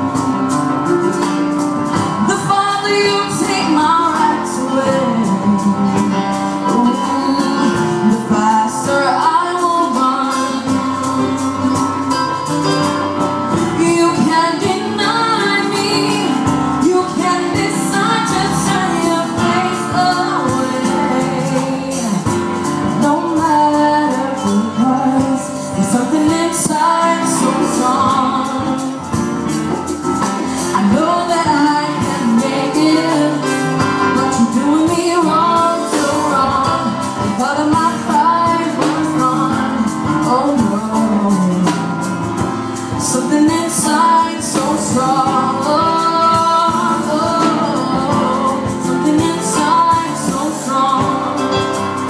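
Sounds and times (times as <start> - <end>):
drums beat: 0.0 - 52.0
keyboard: 0.0 - 52.0
girl singing into a microphone: 13.8 - 22.3.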